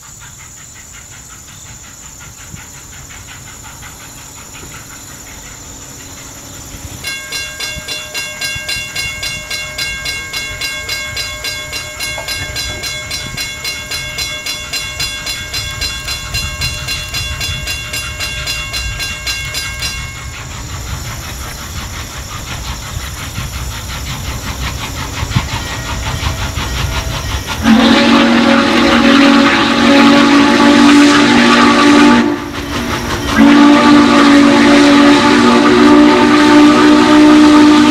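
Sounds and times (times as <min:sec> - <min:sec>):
steam locomotive rumble and hiss: 0:00.0 - 0:37.9
pulsing ringing tone: 0:07.0 - 0:20.5.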